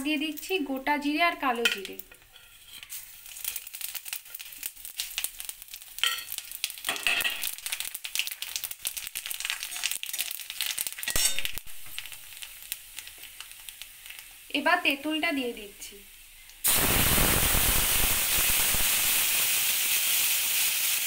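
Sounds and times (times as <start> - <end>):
seeds sizzling in hot oil: 0.0 - 21.0
metal spatula scraping wok: 2.2 - 3.1.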